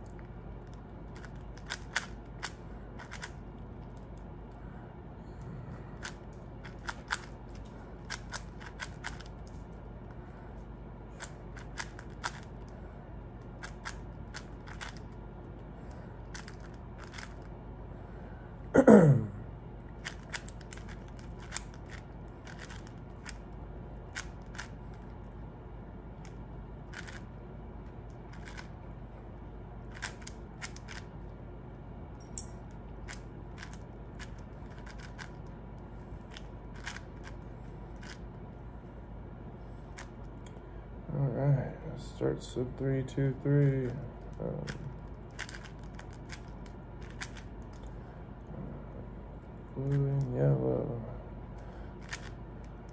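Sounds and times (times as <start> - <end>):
puzzle cube clicking: 1.1 - 4.1, 6.0 - 9.6, 11.2 - 12.6, 13.6 - 15.2, 16.3 - 17.5, 20.0 - 23.4, 24.1 - 24.8, 26.2 - 27.2, 28.3 - 28.7, 29.9 - 31.1, 33.1 - 35.4, 36.3 - 37.4, 44.6 - 47.9, 52.0 - 52.9.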